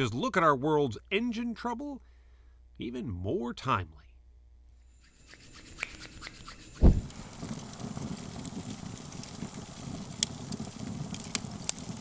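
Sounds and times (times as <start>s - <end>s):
wood fire crackling and popping: 5.4s - 12.0s
loud low thump: 6.8s - 7.2s.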